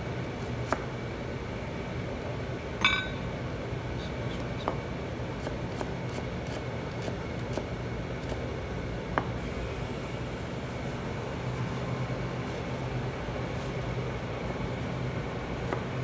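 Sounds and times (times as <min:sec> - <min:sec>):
steady low hum: 0:00.0 - 0:16.0
sharp ringing clink: 0:02.8 - 0:03.2.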